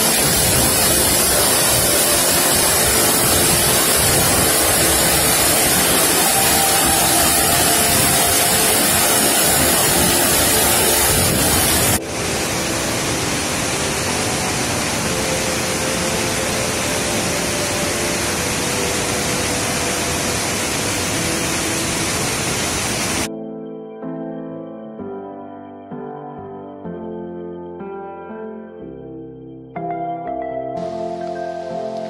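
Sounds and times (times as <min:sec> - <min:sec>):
river rushing over rocks: 0:00.0 - 0:23.3
waterfall splashing onto rocks: 0:00.0 - 0:23.3.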